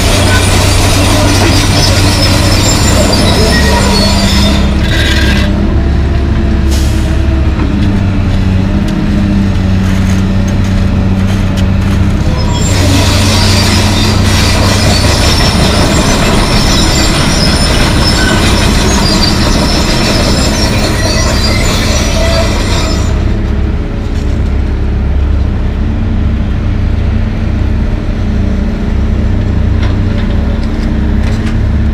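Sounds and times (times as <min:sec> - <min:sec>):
high track squeals: 0:00.0 - 0:05.7, 0:12.2 - 0:23.3
steel crawler tracks grinding: 0:00.0 - 0:25.9
excavator diesel engine running: 0:00.0 - 0:31.9.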